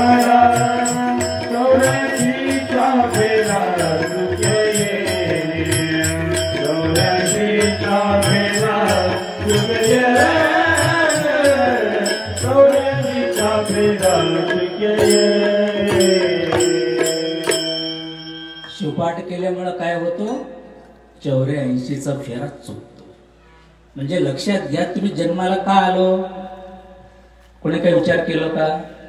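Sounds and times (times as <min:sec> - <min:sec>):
congregation chanting: 0:00.0 - 0:16.9
lead singer chanting: 0:00.0 - 0:17.4
harmonium drones: 0:00.0 - 0:18.6
tabla strokes: 0:00.0 - 0:18.8.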